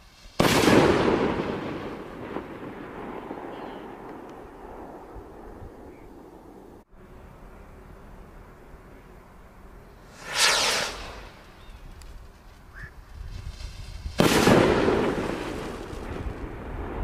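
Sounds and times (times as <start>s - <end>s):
rocket launching whoosh: 0.4s - 3.3s, 10.0s - 11.7s, 13.4s - 17.0s.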